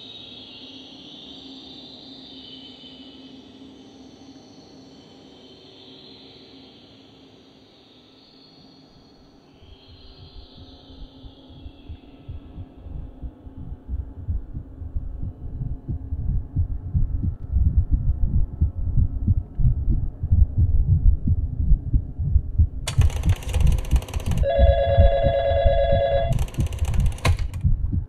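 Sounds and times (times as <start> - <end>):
low pounding throb: 10.6 - 22.9, 27.5 - 28.0
telephone ringing: 22.9 - 27.6.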